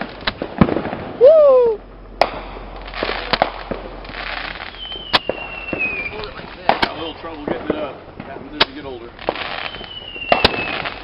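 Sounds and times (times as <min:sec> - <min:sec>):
fireworks hissing: 0:00.0 - 0:11.0
falling whistle: 0:01.2 - 0:01.8, 0:04.7 - 0:06.3, 0:09.6 - 0:11.0
roman candle pops: 0:08.6 - 0:11.0.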